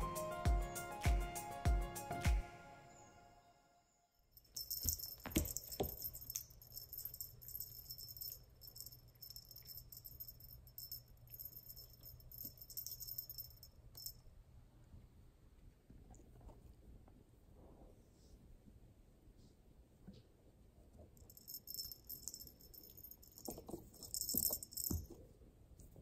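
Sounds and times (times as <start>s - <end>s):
small bell jingling: 4.4s - 14.2s, 21.2s - 25.2s.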